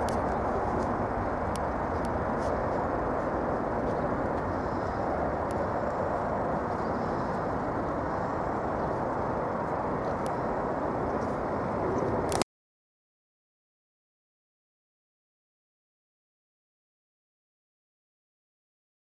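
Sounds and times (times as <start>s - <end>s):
deep jet engine rumble: 0.0s - 12.4s.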